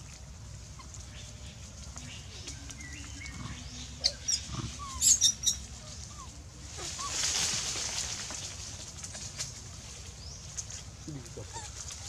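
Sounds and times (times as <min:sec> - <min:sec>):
rustle of leaves: 0:00.0 - 0:12.0
animal squeaks and chirps: 0:04.0 - 0:07.3.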